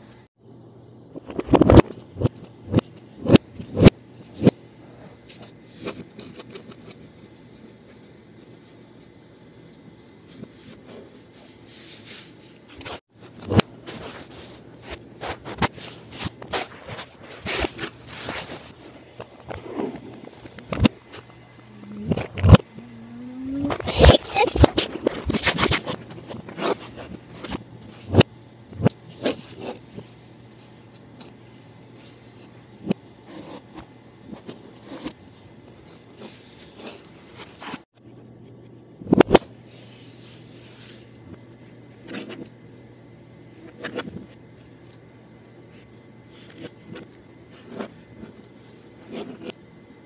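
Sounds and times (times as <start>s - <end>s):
low hum: 17.2s - 29.1s.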